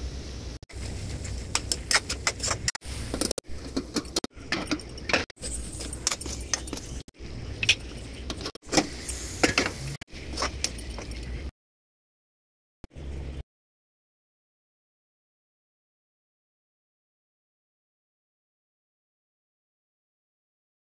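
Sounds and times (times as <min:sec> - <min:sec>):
steel spoon scraping metal pan: 0:00.8 - 0:11.4.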